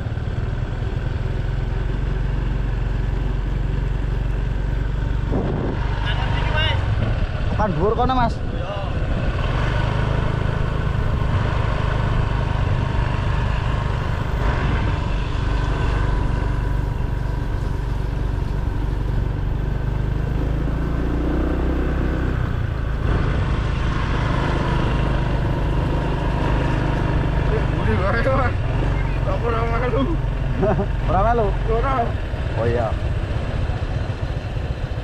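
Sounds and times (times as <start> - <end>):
scooter tyre noise on pavement: 0.0 - 35.0
wind on microphone: 5.2 - 6.0.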